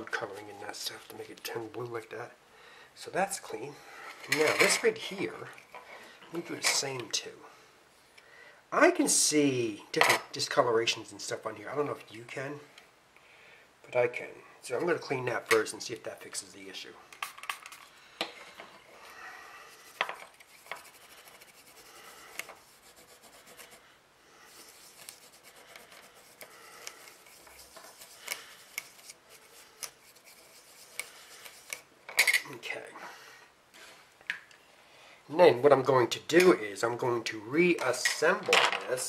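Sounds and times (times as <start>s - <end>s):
cloth rubbing circuit board: 19.7s - 23.8s, 24.5s - 31.9s
plastic parts clattering: 38.0s - 39.0s.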